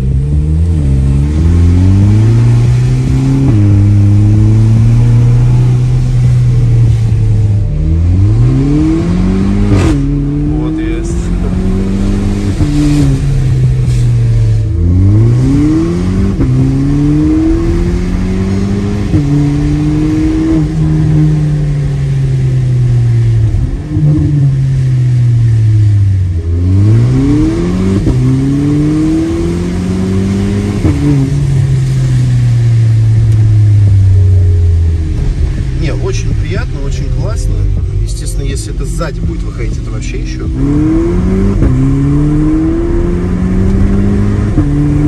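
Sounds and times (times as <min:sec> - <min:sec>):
car engine revving with upshifts: 0:00.0 - 0:45.0.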